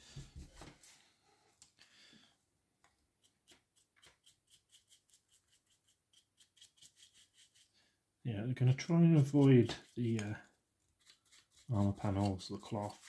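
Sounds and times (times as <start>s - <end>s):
stiff brush scrubbing plastic: 8.6s - 13.0s.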